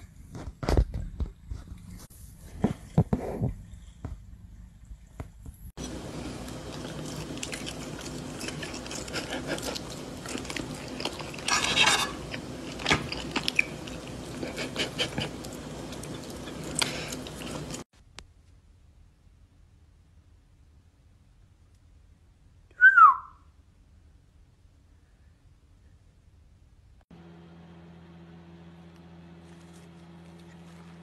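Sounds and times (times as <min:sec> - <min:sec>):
steady hum: 0:03.3 - 0:17.9
chewing and crunching: 0:05.8 - 0:17.9
fork scraping on a plate: 0:11.3 - 0:12.4.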